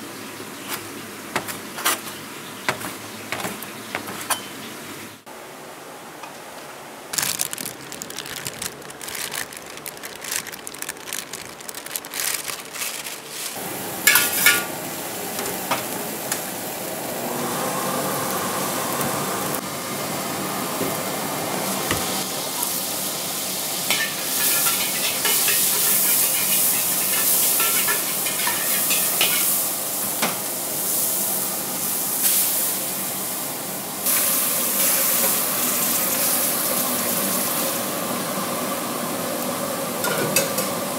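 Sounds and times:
metal utensils clanking: 0:13.2 - 0:14.7, 0:23.9 - 0:29.6
oil sizzling in a wok: 0:13.2 - 0:40.9.

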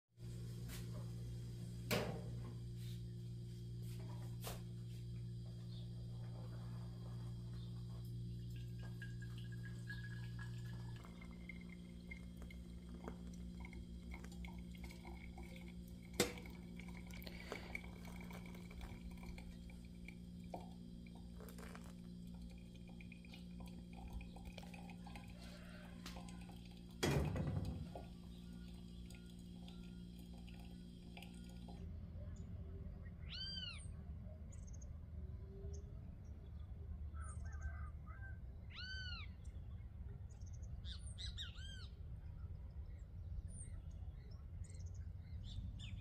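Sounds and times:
steady low hum: 0:00.2 - 0:37.4
coffee dripping: 0:04.9 - 0:31.9
hot water pouring from kettle: 0:06.9 - 0:31.8.

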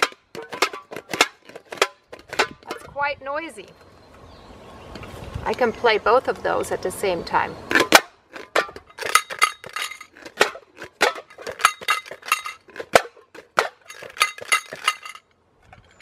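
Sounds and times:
stones rattling in tin cans: 0:00.0 - 0:03.0, 0:07.7 - 0:16.0.

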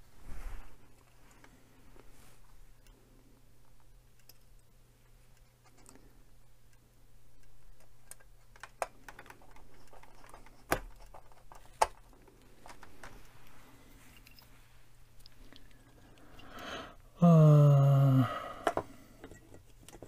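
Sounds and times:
fingers and tool clicking on plastic: 0:05.3 - 0:13.3.

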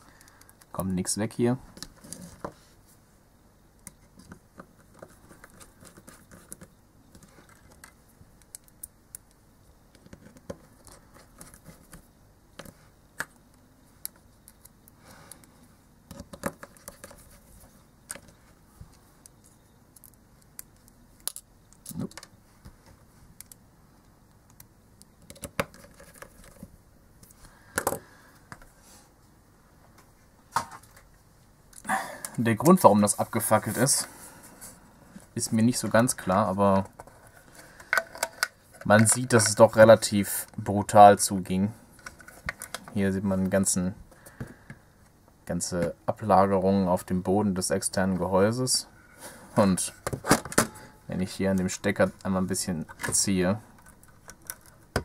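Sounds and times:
small screws clicking and scraping: 0:53.8 - 0:54.9.

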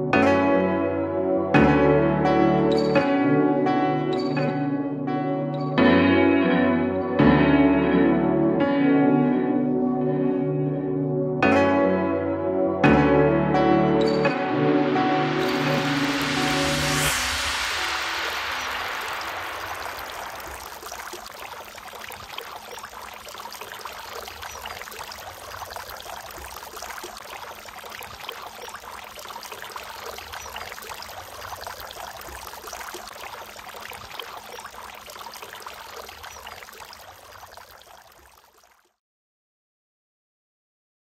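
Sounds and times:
fountain water trickling and splashing: 0:14.0 - 0:39.0.

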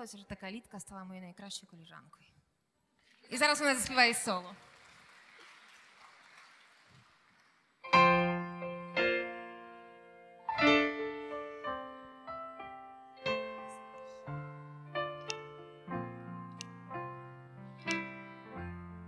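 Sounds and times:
slow piano chords on keyboard: 0:07.9 - 0:19.0.

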